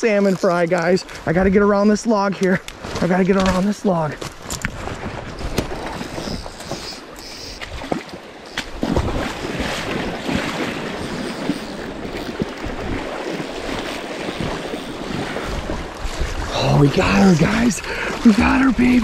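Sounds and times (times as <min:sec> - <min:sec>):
river water rushing: 0:06.1 - 0:19.0.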